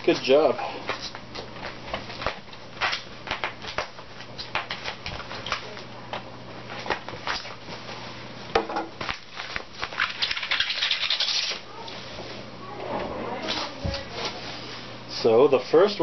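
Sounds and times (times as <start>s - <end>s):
plastic wrap crinkling: 9.0s - 11.9s.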